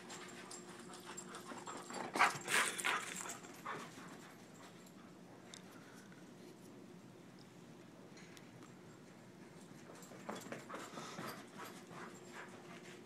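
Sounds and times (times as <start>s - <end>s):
dog panting: 0.2s - 5.0s, 10.4s - 13.0s.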